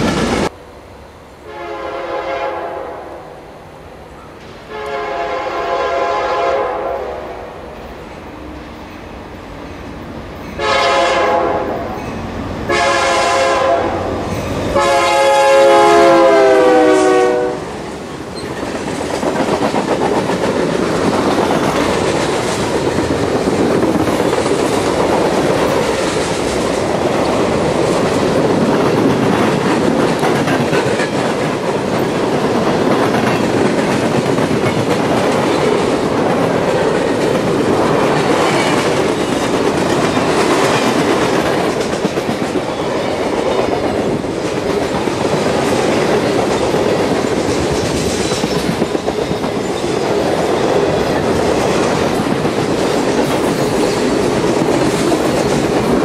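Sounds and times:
locomotive air horn blasts: 1.4 - 3.4, 4.7 - 7.5, 10.6 - 12.0, 12.7 - 14.1, 14.7 - 17.8
train wheels clattering on rail joints: 17.7 - 56.0.

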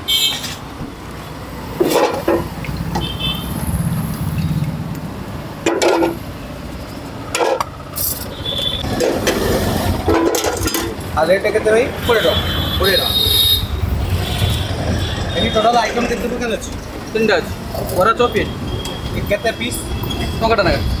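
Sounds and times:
rumble of passing vehicles: 0.0 - 21.0
steel utensils clattering: 1.8 - 2.5, 5.6 - 6.2, 7.3 - 11.0.

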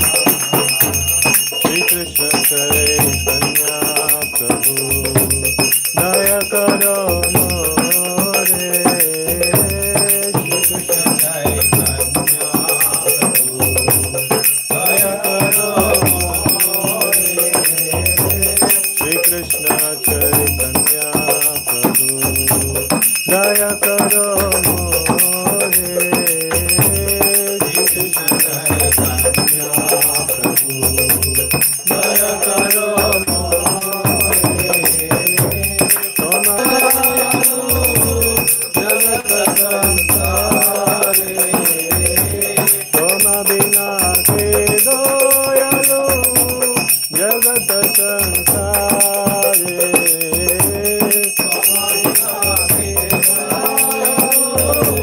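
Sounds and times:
hand cymbals ringing: 0.0 - 55.0
steady drum beat: 0.0 - 55.0
voices singing: 0.0 - 55.0.

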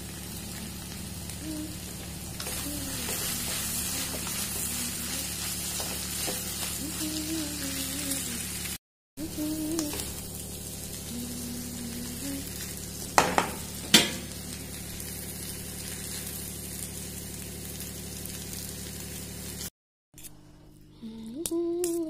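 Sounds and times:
noodles sizzling in a wok: 0.0 - 19.7
wooden spatula knocking pan: 13.2 - 14.2.

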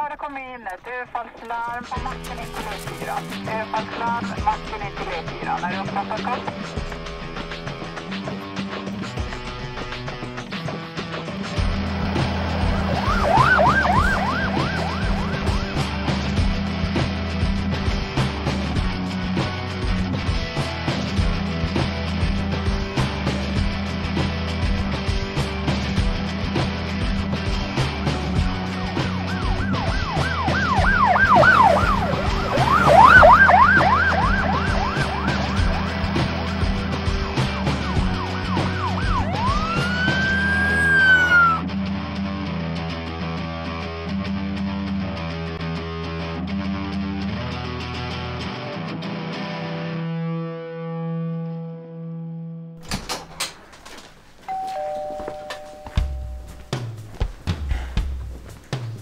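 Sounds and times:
rock music with a beat: 2.8 - 50.4, 56.0 - 59.0
police siren yelping: 11.6 - 15.8, 29.2 - 36.6, 37.2 - 41.6
two-note electronic door chime: 54.5 - 56.8.

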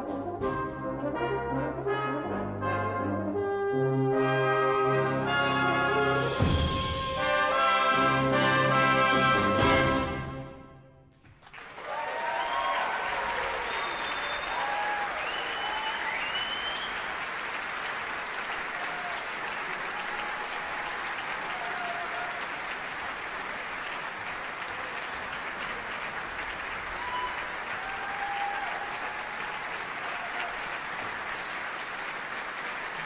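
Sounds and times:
audience applauding: 11.2 - 33.0
audience cheering: 11.4 - 33.0.

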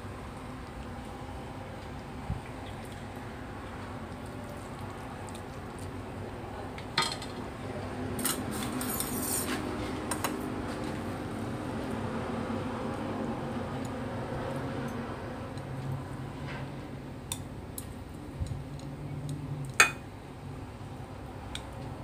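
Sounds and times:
utensils clinking against bowl: 8.2 - 9.6.

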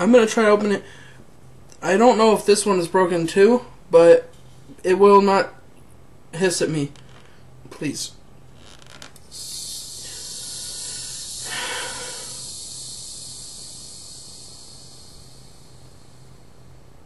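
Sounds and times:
soda gas hissing: 9.2 - 16.8.

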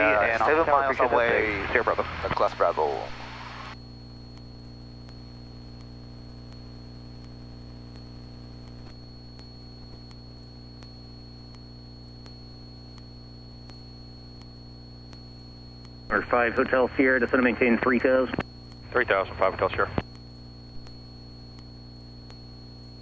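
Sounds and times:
faint static: 0.0 - 23.0
steady electrical hum: 0.0 - 23.0
faint regular ticks: 3.7 - 16.7, 18.0 - 19.0, 19.9 - 23.0.

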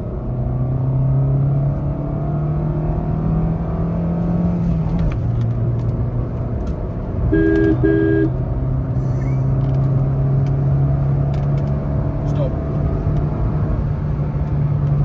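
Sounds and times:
car engine accelerating: 0.0 - 15.0
electronic beep: 7.4 - 8.3.

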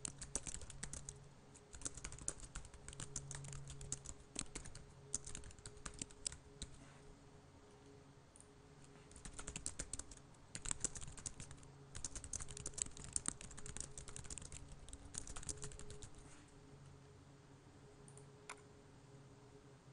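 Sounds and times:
typing on computer keyboard: 0.0 - 6.8, 9.1 - 16.2
faint low hum: 0.0 - 19.9.

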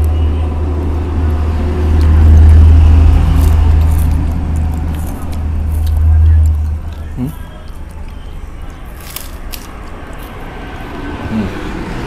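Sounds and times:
steady low rumble: 0.0 - 8.9.

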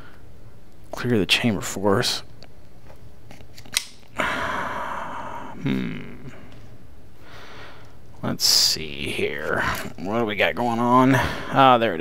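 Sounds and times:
pistol slide metal click: 3.6 - 4.0.

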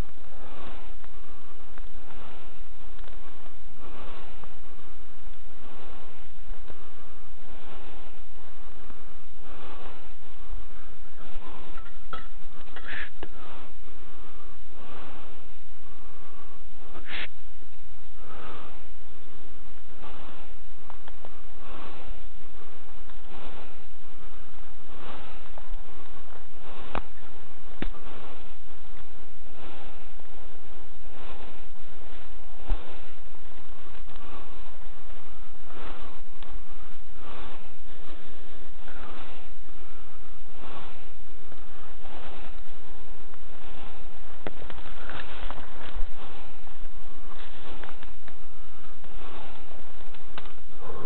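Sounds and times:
person breathing heavily: 0.0 - 51.0
steady hiss: 0.0 - 51.0.

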